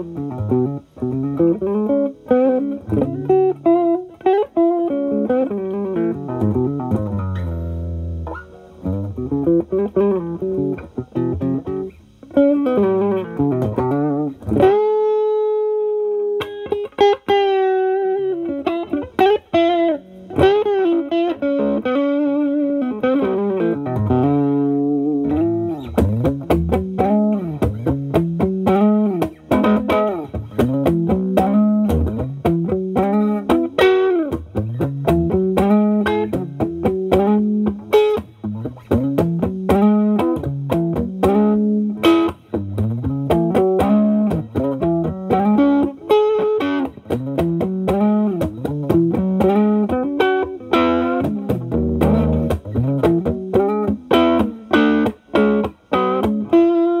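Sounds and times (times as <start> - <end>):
overdriven electric guitar: 0.0 - 57.0.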